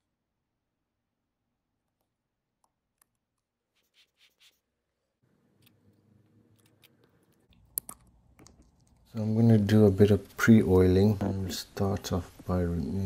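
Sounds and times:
faint room noise: 0.0 - 13.0
tweezers clicking and scraping: 5.5 - 9.1.

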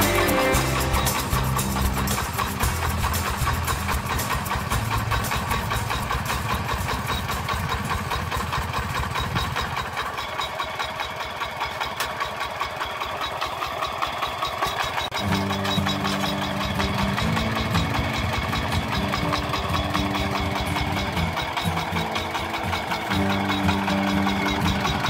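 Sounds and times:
diesel engine chugging: 0.0 - 25.0.

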